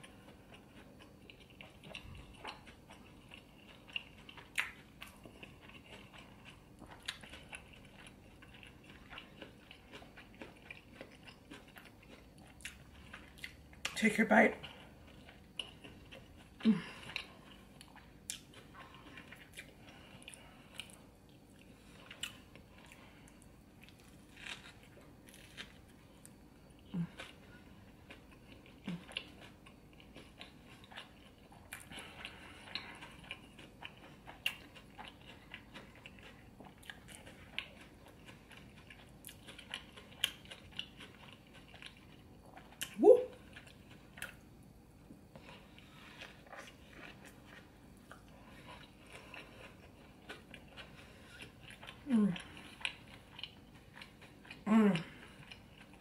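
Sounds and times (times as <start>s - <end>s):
chewing and biting: 0.0s - 14.0s, 14.6s - 44.5s, 45.1s - 56.0s
person humming: 43.0s - 43.3s, 54.7s - 55.2s.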